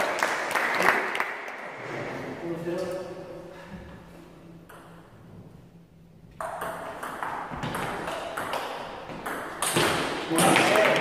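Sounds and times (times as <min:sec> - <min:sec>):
ping pong ball clicking: 0:06.4 - 0:09.9.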